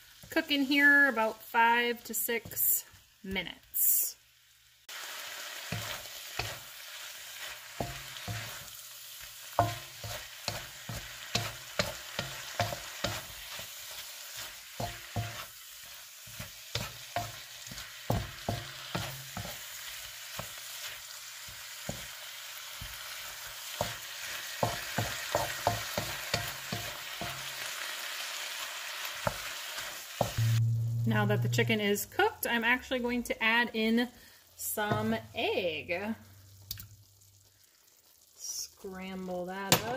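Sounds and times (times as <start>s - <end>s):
chicken sizzling in a pan: 0.0s - 32.8s, 33.4s - 39.9s
wooden spatula scraping a pan: 5.6s - 22.2s.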